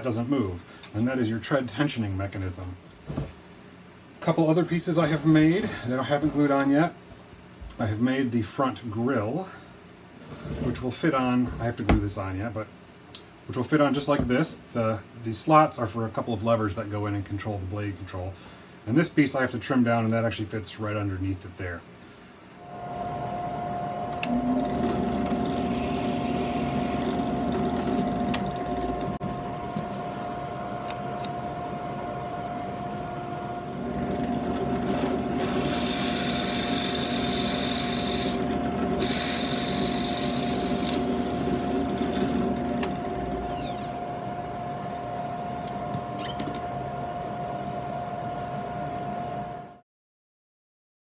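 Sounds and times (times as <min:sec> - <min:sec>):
drill press motor whine: 0:22.6 - 0:49.8
drill bit boring into wood: 0:24.2 - 0:29.1, 0:33.8 - 0:44.0.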